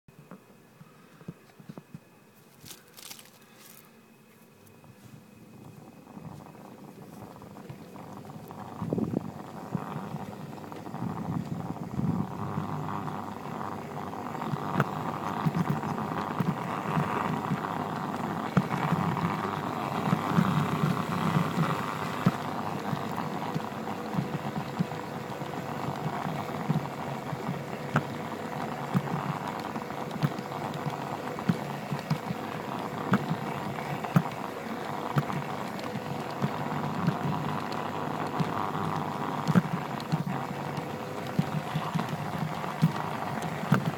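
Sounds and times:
irregular clicks: 25.7s - 43.9s.

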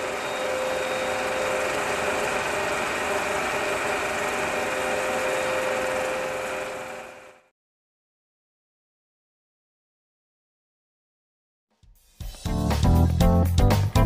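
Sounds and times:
film projector whirring: 0.0s - 7.5s.

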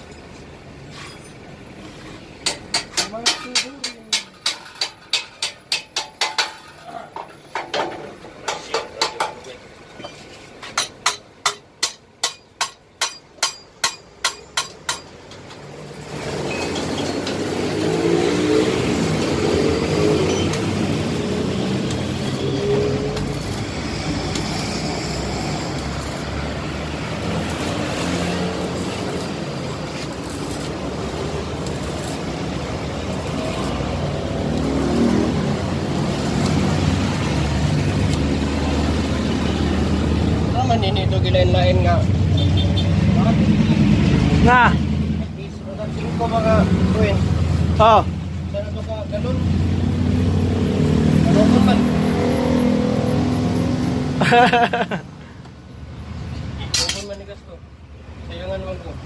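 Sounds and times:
hammer striking metal: 2.4s - 6.8s, 7.6s - 9.5s, 10.7s - 15.6s.

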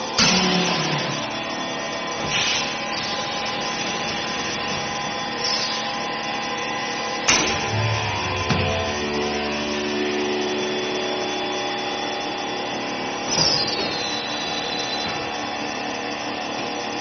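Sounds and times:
vacuum pump running: 0.0s - 17.0s
air hissing: 5.4s - 5.9s.

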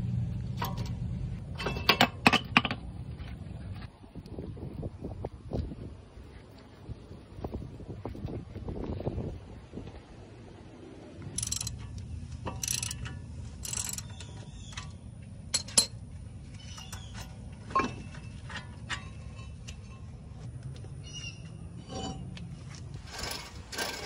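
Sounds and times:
low steady rumble: 0.0s - 24.0s
metal clinks and scrapes: 0.6s - 2.8s, 11.3s - 16.0s, 16.6s - 20.4s, 21.8s - 24.0s.

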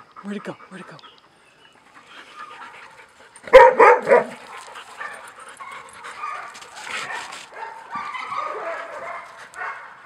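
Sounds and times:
dog barking: 3.5s - 4.4s, 6.2s - 10.0s.

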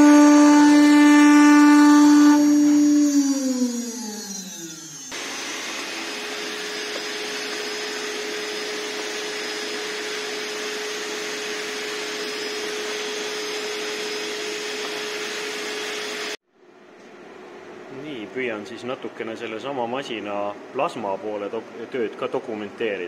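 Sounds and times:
router spindle whine winding down: 0.0s - 16.4s
vacuum cleaner running: 0.0s - 16.4s.

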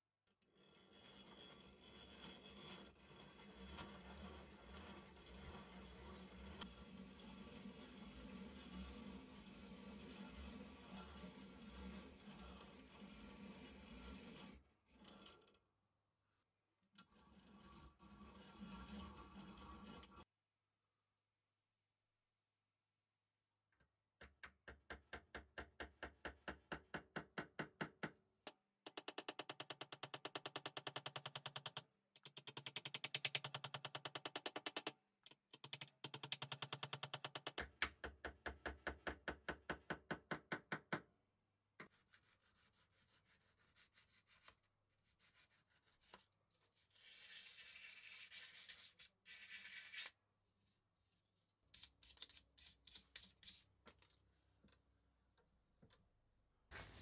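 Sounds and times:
rubbing and scraping: 41.9s - 50.2s.

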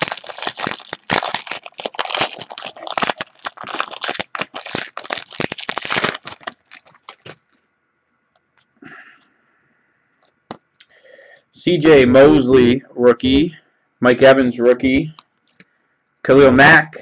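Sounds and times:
foil wrapper crinkling: 0.0s - 7.6s.

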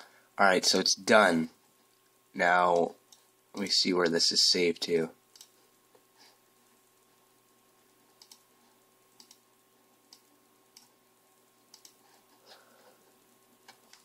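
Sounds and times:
faint steady hum: 0.0s - 14.0s
computer mouse clicks: 5.3s - 5.6s, 8.2s - 8.5s, 9.2s - 9.4s, 10.1s - 10.9s, 11.7s - 12.0s, 13.6s - 14.0s.

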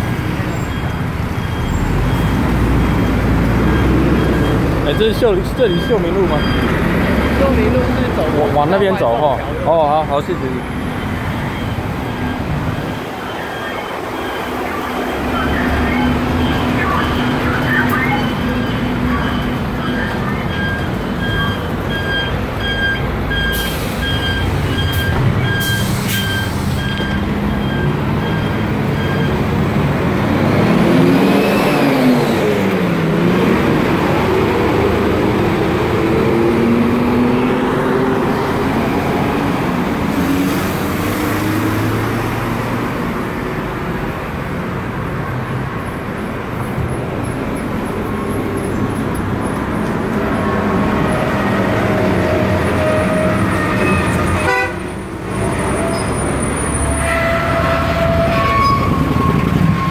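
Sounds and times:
city traffic passing: 0.0s - 59.9s
high beeping: 0.4s - 29.6s.

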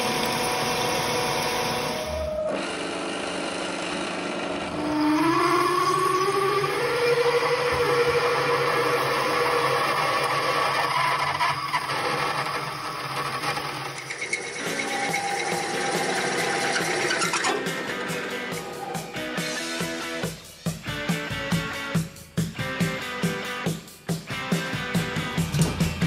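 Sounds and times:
milling machine cutting: 0.0s - 19.1s
lathe drilling whine: 0.0s - 19.8s.

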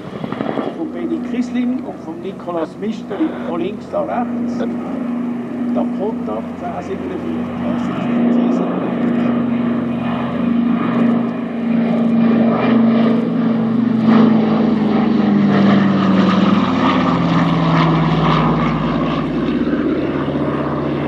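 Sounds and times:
propeller aircraft engines flyby: 0.0s - 21.0s.

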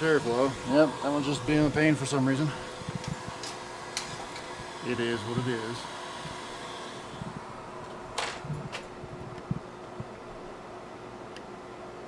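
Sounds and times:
air blower hiss: 0.0s - 9.6s.

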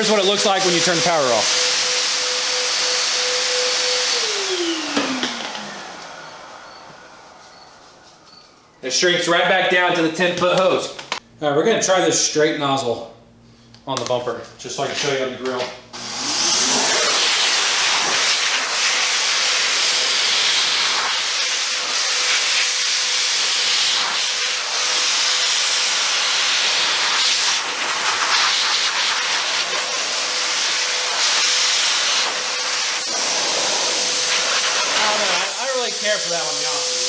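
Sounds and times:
car dryer blowing air: 0.0s - 8.2s, 16.0s - 37.0s.

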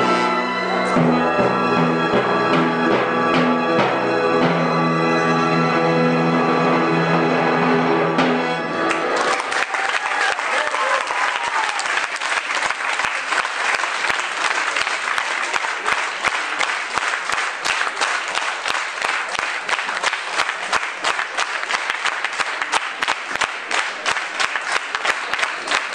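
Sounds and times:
audience applauding: 8.7s - 25.9s.

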